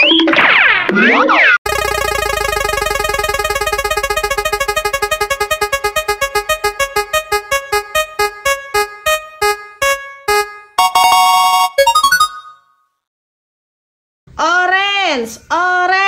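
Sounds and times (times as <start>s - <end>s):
electronic keyboard ticking notes: 1.7s - 12.7s.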